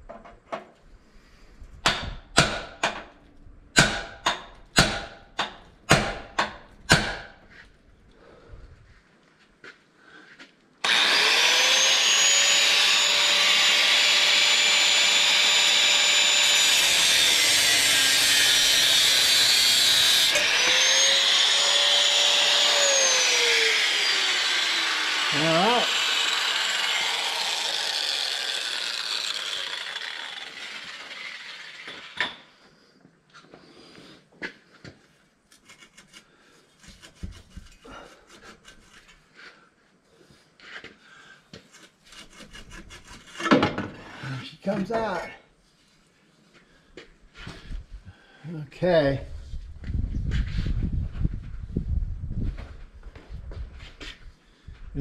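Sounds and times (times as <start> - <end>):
electric power tool whining: 10.8 - 32.6.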